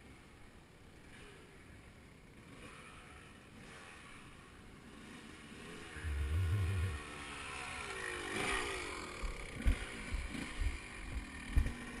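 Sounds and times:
dirt bike engine revving: 2.3s - 12.0s
low wind rumble: 6.0s - 7.2s
sharp thumps over bumps: 9.6s - 12.0s.

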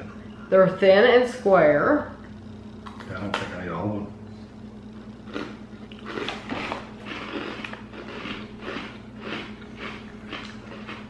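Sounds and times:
chewing crispy cookies: 5.2s - 11.0s.

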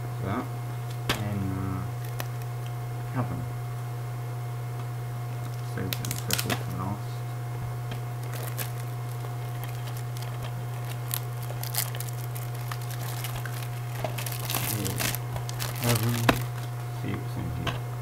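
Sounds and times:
steady low hum: 0.0s - 18.0s
plastic case crinkling and clicking: 2.0s - 2.5s, 5.5s - 6.8s, 8.2s - 16.7s.

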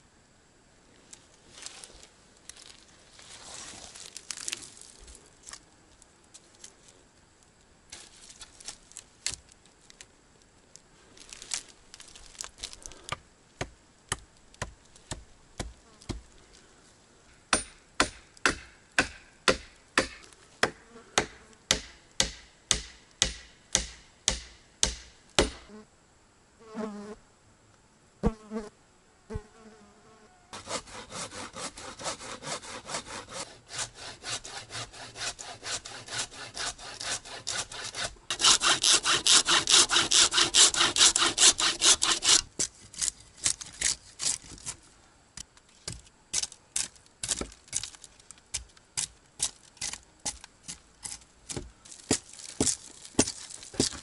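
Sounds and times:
hatchet striking wood: 13.6s - 16.2s, 17.5s - 25.7s
hand saw cutting wood: 30.5s - 44.4s.

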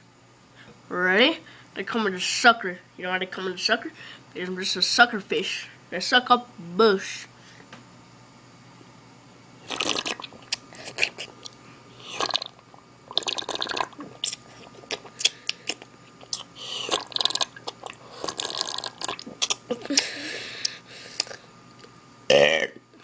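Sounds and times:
boy slurping liquid: 9.7s - 20.3s.

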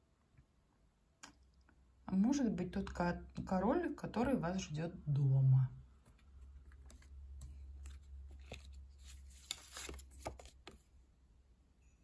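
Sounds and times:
cards sliding and tapping: 6.0s - 10.9s.

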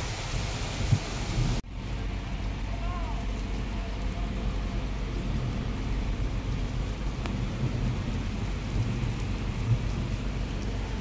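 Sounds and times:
heavy rain falling: 0.0s - 11.0s
low rumble: 0.9s - 11.0s.

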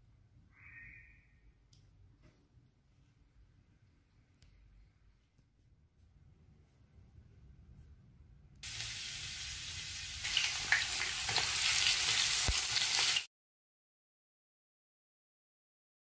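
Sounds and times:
garlic sizzling in hot oil: 8.6s - 13.3s.

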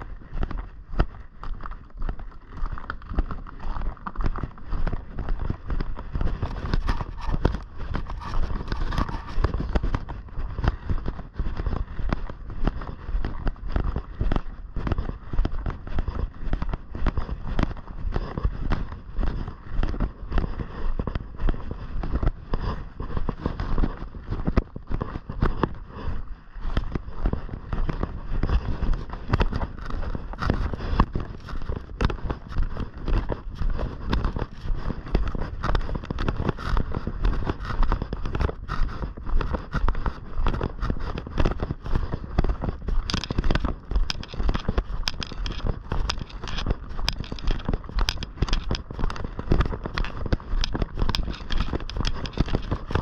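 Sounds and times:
footsteps crunching on snow: 0.0s - 53.0s
wind buffeting microphone: 3.0s - 53.0s.

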